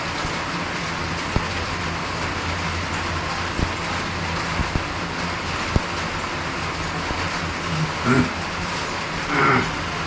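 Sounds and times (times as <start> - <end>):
rain on a roof: 0.0 - 10.0.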